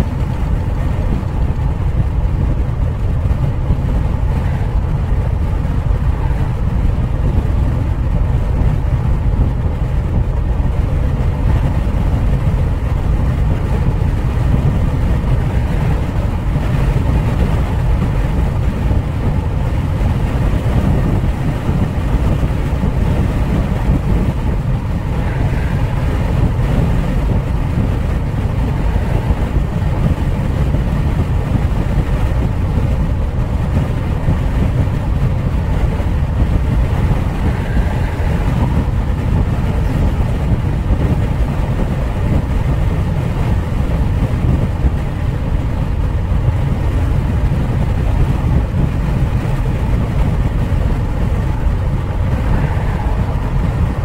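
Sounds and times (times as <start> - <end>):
car engine: 0.0 - 54.0
road and tyre noise: 0.0 - 54.0.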